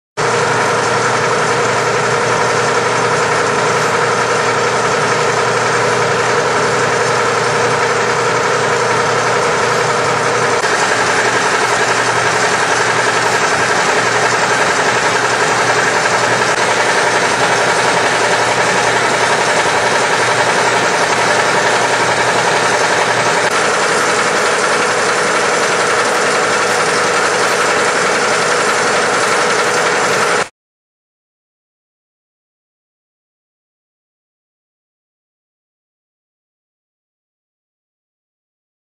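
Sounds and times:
slicer machine humming: 0.2 - 30.5.

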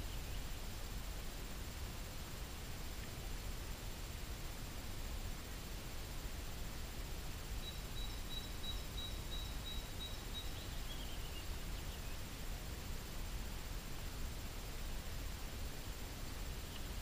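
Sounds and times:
small songbird singing: 0.0 - 0.8, 7.5 - 12.4, 16.5 - 17.0.

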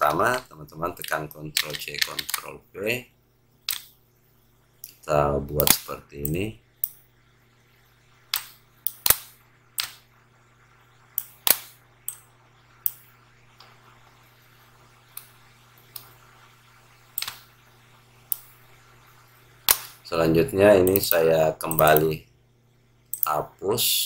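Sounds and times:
computer mouse clicking: 0.0 - 2.5, 3.7 - 4.0, 5.6 - 7.0, 8.3 - 10.1, 15.1 - 16.2, 17.1 - 17.5, 18.3 - 18.5, 20.8 - 22.2
faint electrical hum: 0.0 - 24.0.

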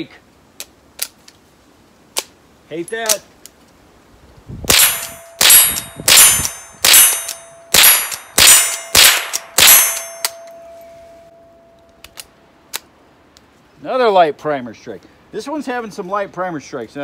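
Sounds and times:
rifle shots: 4.7 - 10.4
steel plate target clanging: 4.7 - 11.4.

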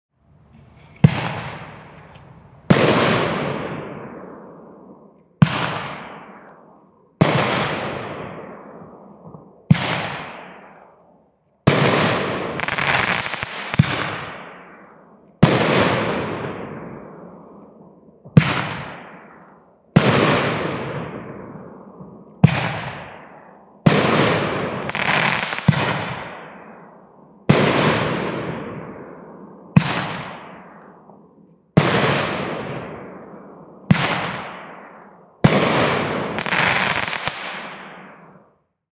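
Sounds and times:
fireworks bangs: 0.2 - 4.3, 7.2 - 10.8, 11.7 - 14.7, 22.4 - 26.8, 33.9 - 38.5.

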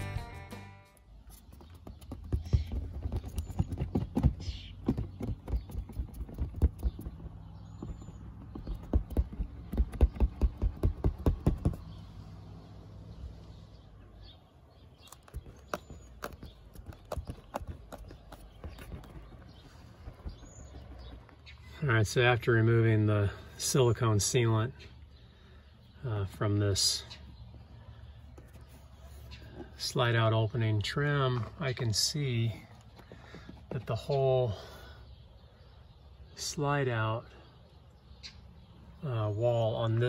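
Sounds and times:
quick irregular knocks and taps: 1.5 - 11.9.

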